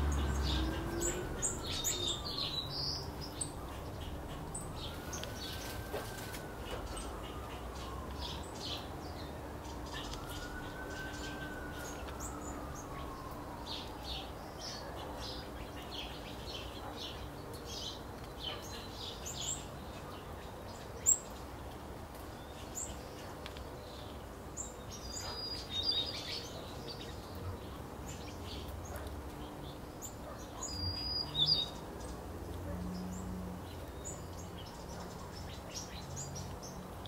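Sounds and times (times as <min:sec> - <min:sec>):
finches chirping and twittering: 0:00.0 - 0:05.7.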